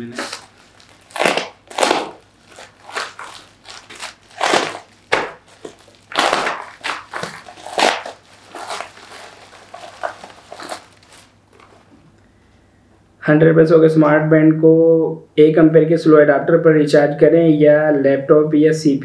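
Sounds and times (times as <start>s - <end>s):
craft knife cutting plastic: 0.0s - 11.7s
plastic packaging crinkling: 0.0s - 11.9s.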